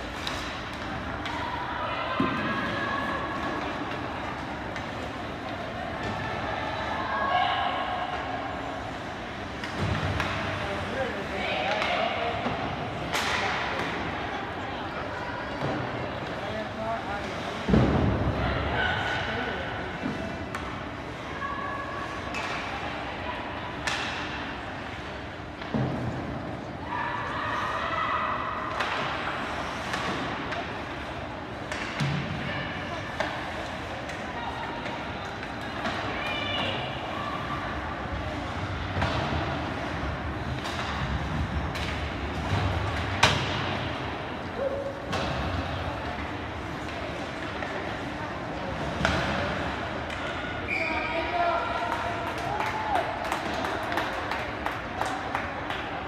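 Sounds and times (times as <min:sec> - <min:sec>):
steady rink hum: 0:00.0 - 0:56.0.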